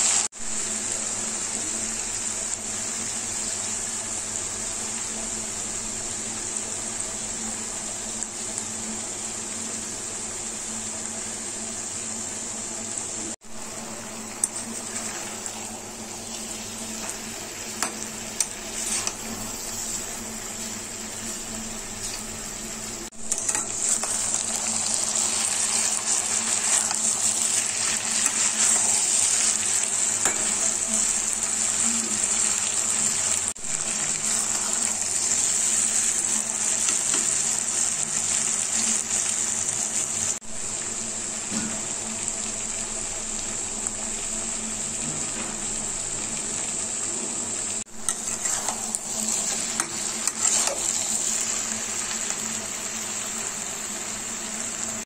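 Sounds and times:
food sizzling in oil: 0.0s - 55.0s
spatula scraping pan: 14.3s - 22.3s, 48.0s - 51.6s.

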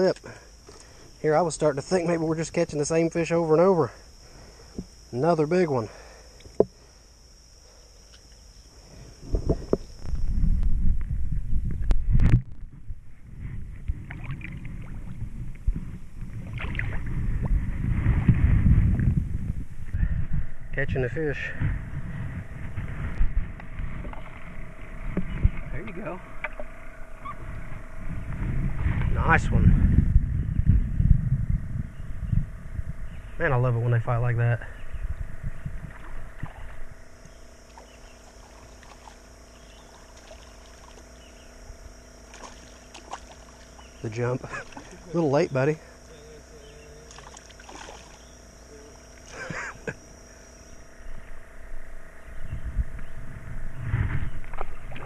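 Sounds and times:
faint high hum: 0.0s - 55.0s
low rumble: 9.2s - 37.5s, 50.7s - 55.0s
water sloshing and splashing: 14.0s - 15.2s, 16.4s - 17.1s, 23.9s - 25.7s, 37.7s - 39.2s, 39.8s - 41.1s, 42.3s - 43.8s, 44.6s - 45.1s, 47.1s - 48.2s, 54.4s - 55.0s
creek water trickling: 35.8s - 41.3s, 42.2s - 45.5s, 47.0s - 48.4s.

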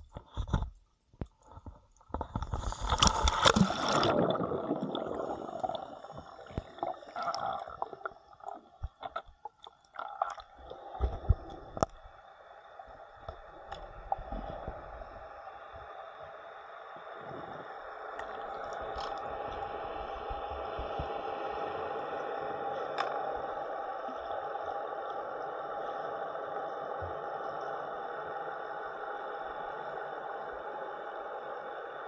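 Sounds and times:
sharp clicks and pops: 0.0s - 5.0s
muffled underwater gurgling: 1.5s - 12.2s, 12.8s - 32.0s
water splashing and bubbling: 2.1s - 15.9s, 17.2s - 21.8s
steady hiss: 10.8s - 32.0s.

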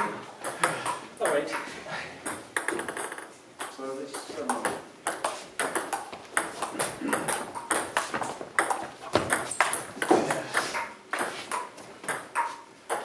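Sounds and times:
table tennis balls ticking: 0.4s - 13.0s.

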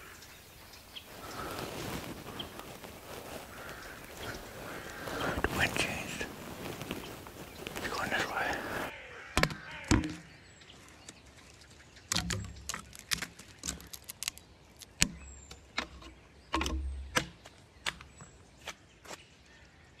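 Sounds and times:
twigs cracking underfoot: 0.0s - 19.2s
clothing and gear rustling: 1.0s - 8.9s.

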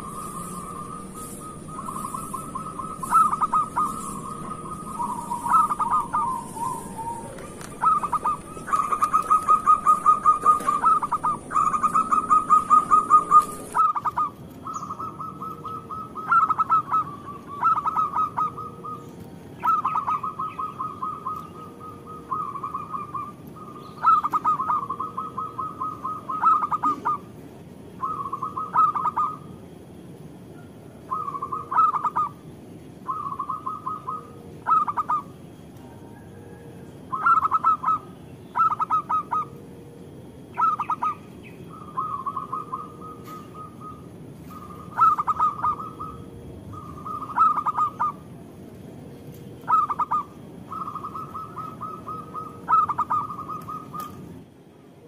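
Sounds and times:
dove cooing: 0.0s - 27.4s, 28.0s - 29.6s, 31.0s - 32.4s, 33.1s - 48.3s, 49.6s - 54.3s.

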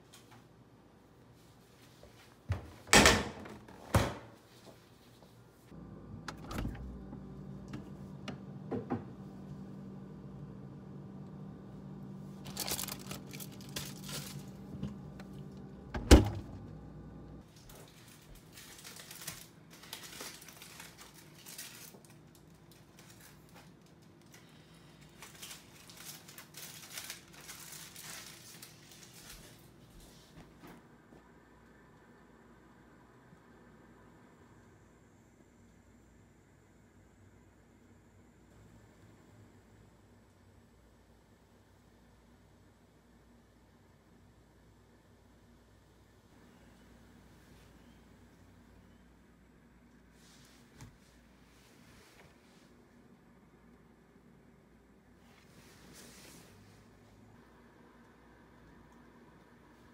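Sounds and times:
refrigerator hum: 5.6s - 42.2s.

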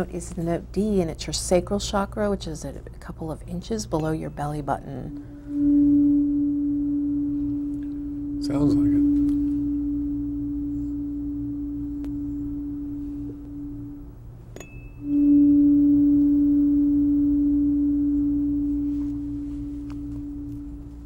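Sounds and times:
tuning fork ringing: 4.0s - 21.0s
tuning fork struck with a tap: 5.0s - 14.0s, 14.6s - 21.0s.

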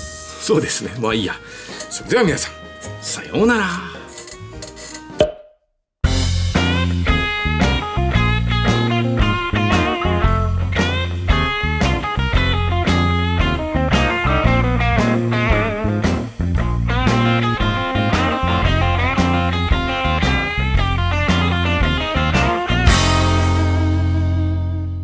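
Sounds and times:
blues-rock music: 0.0s - 5.2s, 6.0s - 25.0s
electric guitar lead: 6.1s - 25.0s.

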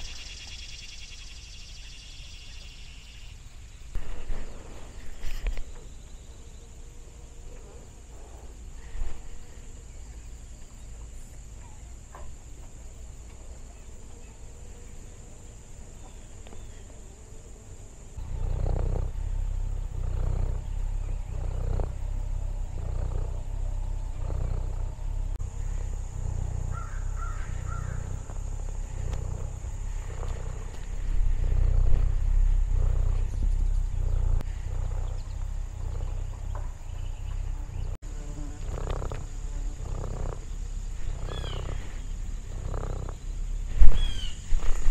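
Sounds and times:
insects buzzing: 0.0s - 44.9s
cat purring: 16.1s - 44.9s.

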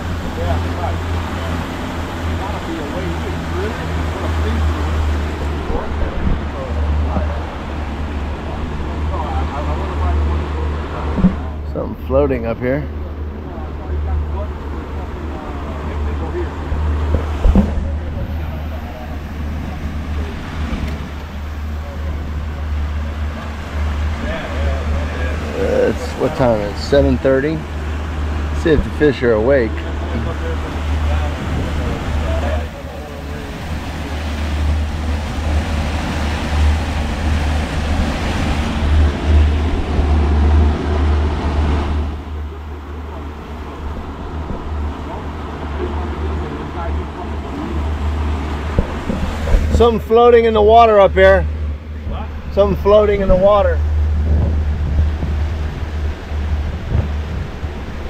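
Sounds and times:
gusty wind on microphone: 0.0s - 12.1s, 12.9s - 58.0s
boat engine noise: 0.0s - 58.0s
outboard motors droning: 0.0s - 58.0s
water rushing past hull: 0.0s - 58.0s
thump: 17.1s - 17.9s.

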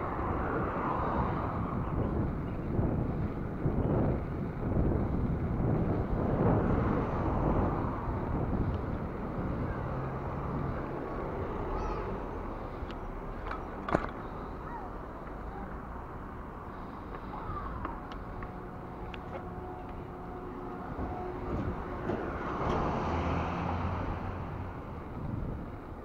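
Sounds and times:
wind on microphone: 0.0s - 12.5s, 17.7s - 26.0s
bicycle rolling on paving: 0.6s - 10.8s.

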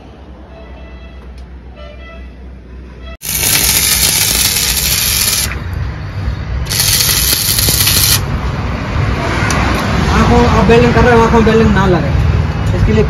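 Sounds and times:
arc welding crackling hiss: 3.2s - 5.6s, 6.7s - 8.2s.

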